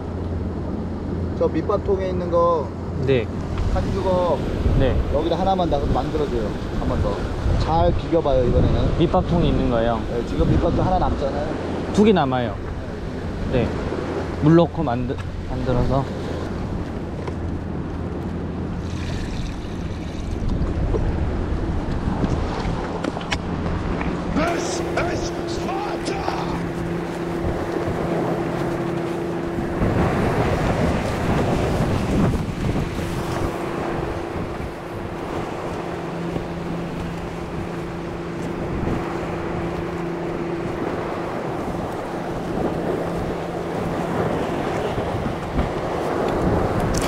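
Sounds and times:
wind buffeting microphone: 0:02.9 - 0:47.0
steady low hum: 0:12.5 - 0:47.0
surf washing over rocks: 0:18.6 - 0:47.0.

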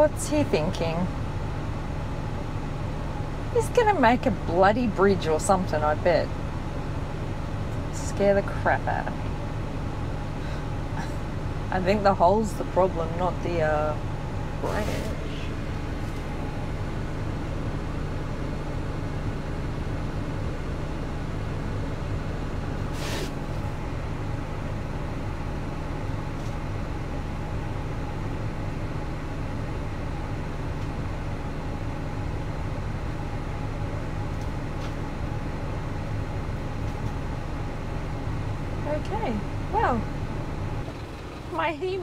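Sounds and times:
diesel truck engine idling: 0:00.0 - 0:42.0.

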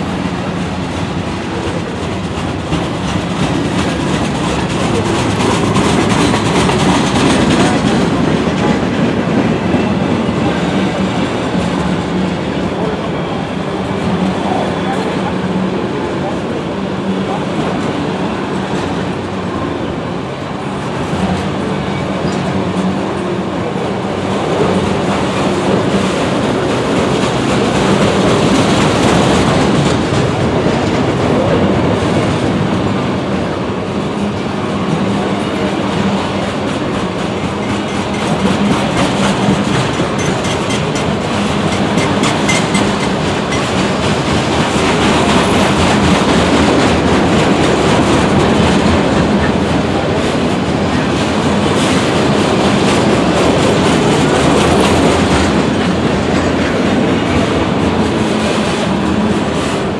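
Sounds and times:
freight cars rolling on rails: 0:00.0 - 0:59.9
wheels clicking over rail joints: 0:01.6 - 0:09.8, 0:36.6 - 0:50.3.

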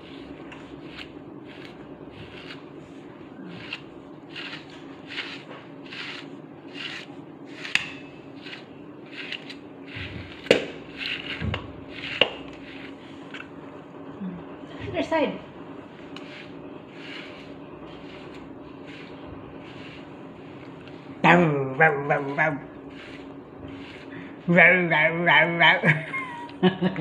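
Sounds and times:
brush swishing through fur: 0:00.0 - 0:07.8, 0:08.4 - 0:13.3, 0:15.8 - 0:21.2, 0:22.1 - 0:24.5
steady low hum: 0:00.0 - 0:27.0.

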